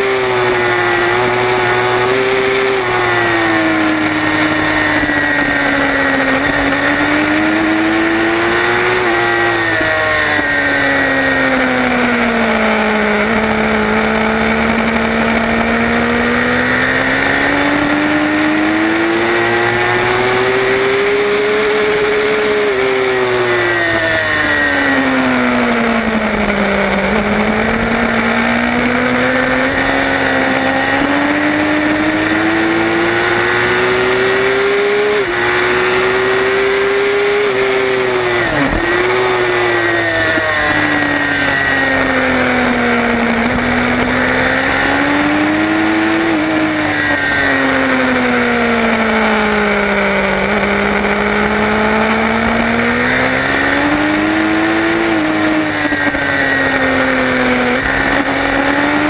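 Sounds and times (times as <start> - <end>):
race motorcycle engine revving: 0.0 - 59.0.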